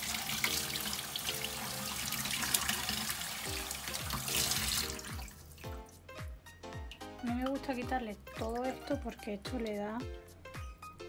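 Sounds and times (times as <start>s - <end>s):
tap water splashing into sink: 0.0s - 5.8s.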